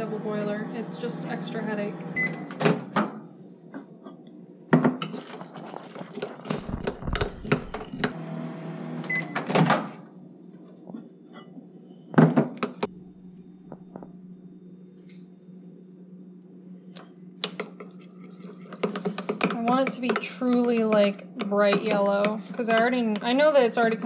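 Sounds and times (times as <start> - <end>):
microwave oven humming: 0.0 - 24.0
microwave short beep: 2.2 - 2.5, 9.1 - 9.4.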